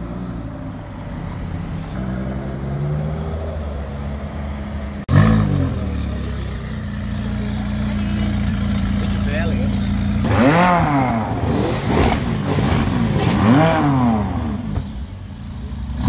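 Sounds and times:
car engine running: 0:04.5 - 0:16.0
car engine revving then idling: 0:10.0 - 0:14.8.

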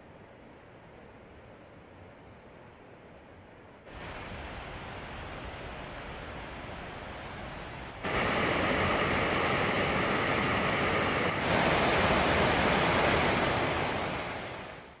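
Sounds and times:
waterfall rushing: 0:03.9 - 0:15.0.

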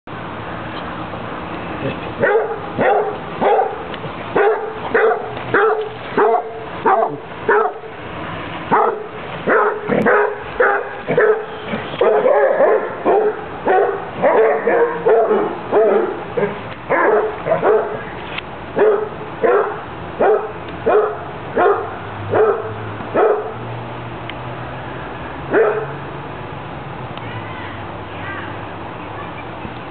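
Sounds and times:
dog barking: 0:02.2 - 0:03.8, 0:04.4 - 0:07.9, 0:08.7 - 0:18.0, 0:18.8 - 0:23.6, 0:25.5 - 0:26.0.

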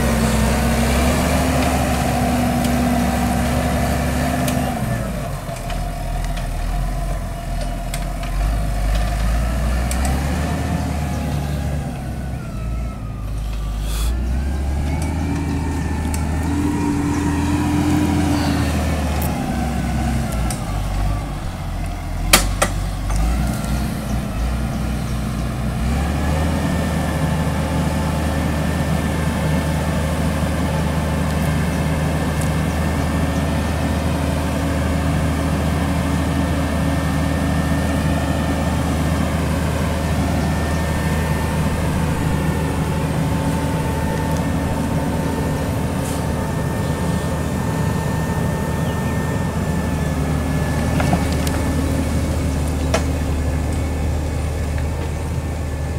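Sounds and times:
tractor diesel engine: 0:00.0 - 0:55.9.

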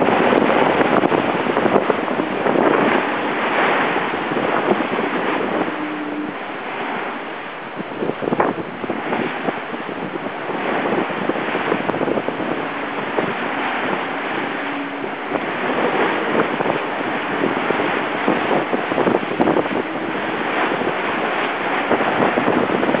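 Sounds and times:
water splashing along hull: 0:00.0 - 0:23.0
wind buffeting microphone: 0:00.0 - 0:23.0.

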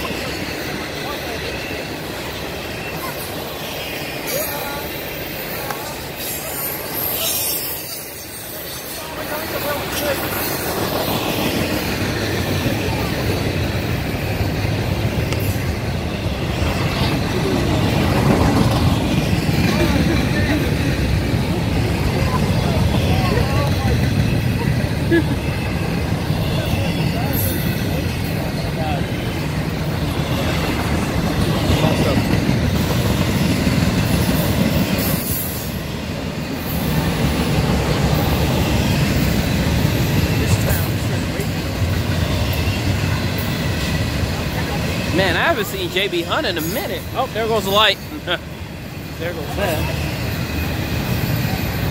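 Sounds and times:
train wheels rumbling on rail: 0:00.0 - 0:51.9.

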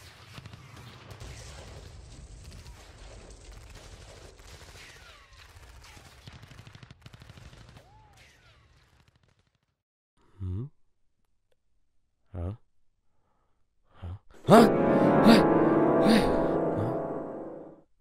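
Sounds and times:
rapid machine-gun fire: 0:00.3 - 0:07.8.

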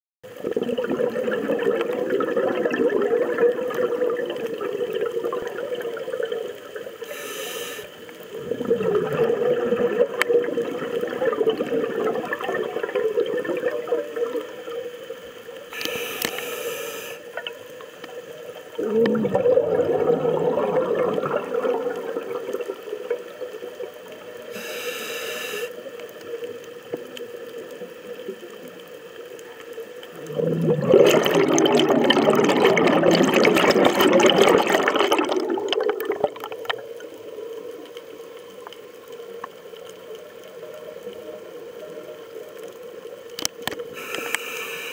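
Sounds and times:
exhaled bubbling underwater: 0:00.2 - 0:07.3, 0:07.9 - 0:15.8, 0:17.2 - 0:44.4
regulator inhalation hiss: 0:07.0 - 0:08.3, 0:15.6 - 0:17.4, 0:24.4 - 0:26.0, 0:43.8 - 0:44.9.

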